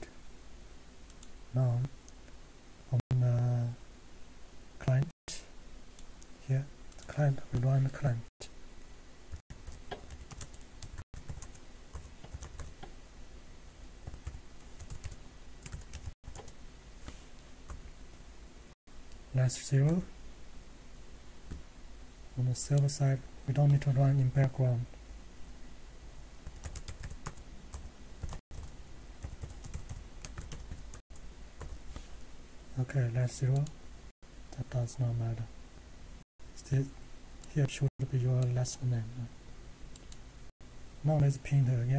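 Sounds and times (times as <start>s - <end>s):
computer keyboard typing: 9.6s - 12.8s, 14.0s - 16.6s, 26.4s - 31.0s.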